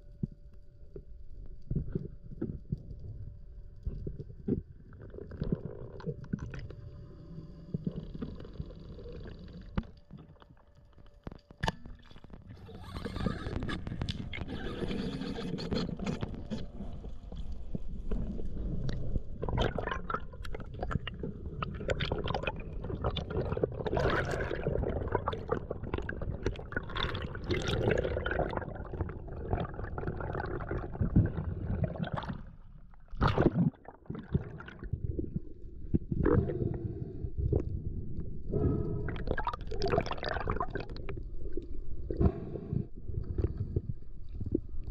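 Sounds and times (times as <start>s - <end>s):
bubbles gurgling: 18.1s - 36.7s, 39.0s - 41.8s.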